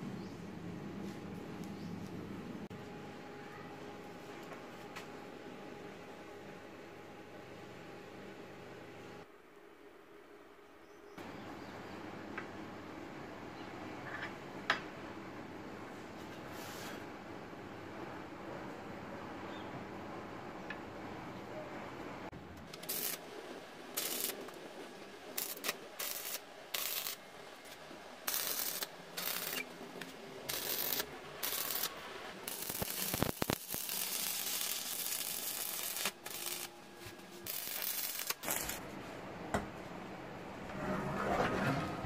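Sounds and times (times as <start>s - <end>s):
electric arc welding crackling: 22.7s - 24.6s, 25.2s - 38.8s.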